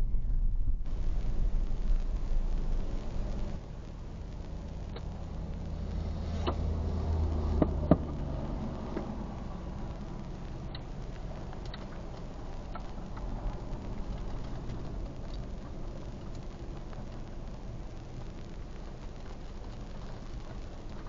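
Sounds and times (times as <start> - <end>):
car road and engine rumble: 0.0 - 21.0
sharp ticks: 6.4 - 17.0.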